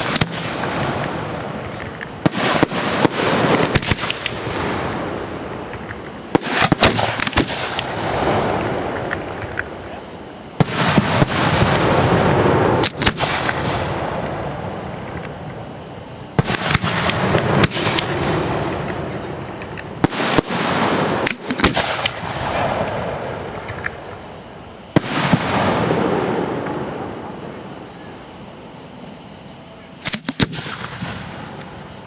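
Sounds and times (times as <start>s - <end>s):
firework shells bursting: 0.0s - 9.9s, 10.6s - 24.2s, 30.0s - 31.8s.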